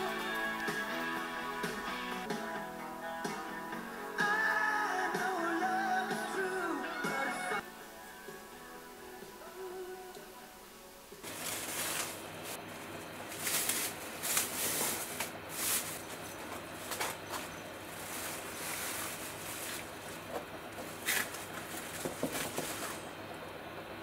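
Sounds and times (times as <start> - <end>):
plastic bag crinkling: 11.2 - 23.2.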